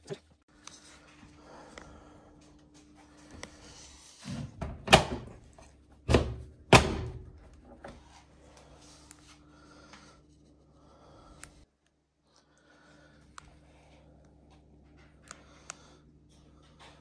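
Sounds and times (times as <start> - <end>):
washing machine door clunking shut: 4.6 - 5.4, 6.1 - 7.3.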